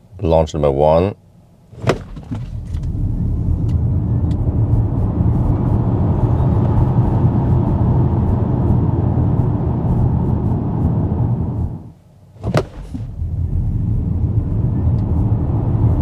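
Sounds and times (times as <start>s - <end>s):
tyre and road rumble: 1.7s - 5.0s, 12.4s - 14.4s
wind noise: 1.8s - 11.8s.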